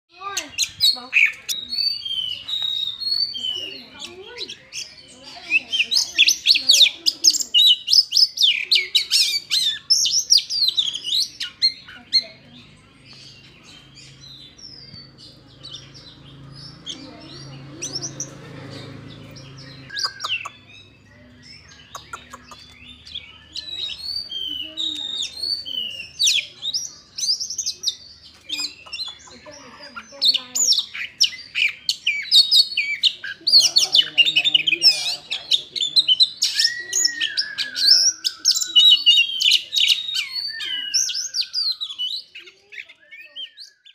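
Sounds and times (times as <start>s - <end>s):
bird singing sliding whistles: 36.4s - 42.3s.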